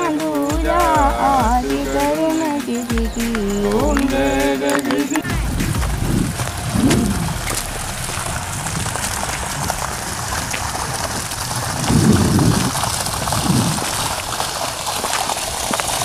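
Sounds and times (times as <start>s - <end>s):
water gushing and splashing: 3.7s - 16.0s
low rumble: 5.3s - 14.4s.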